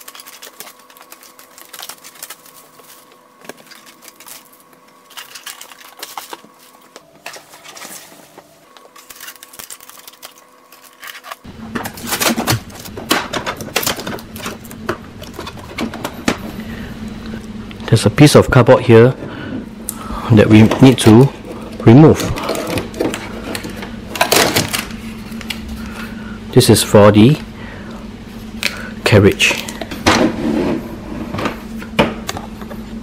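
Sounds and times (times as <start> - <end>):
packing tape peeling: 0.0 - 8.1, 8.7 - 16.0
plastic wrap crinkling: 0.0 - 16.2.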